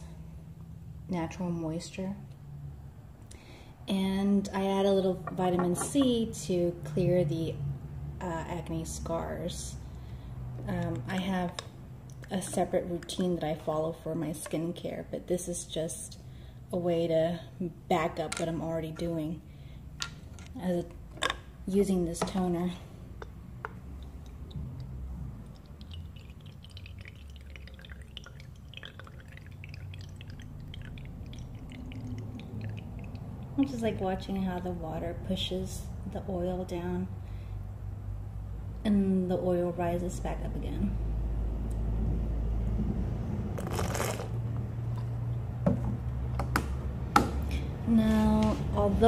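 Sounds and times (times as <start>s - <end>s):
low steady hum: 0.0s - 49.0s
liquid dripping and trickling: 23.1s - 34.8s
plastic bottle rustle: 43.6s - 44.4s.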